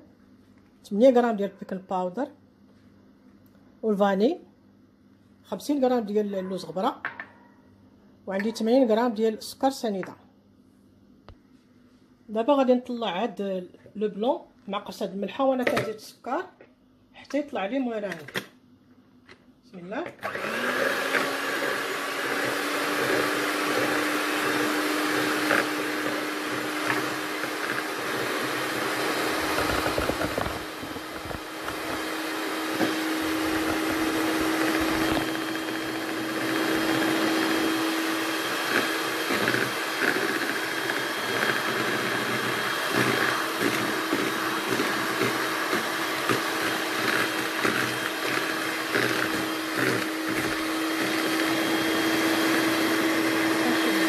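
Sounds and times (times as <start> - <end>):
electric hand mixer whisking: 20.2 - 54.0.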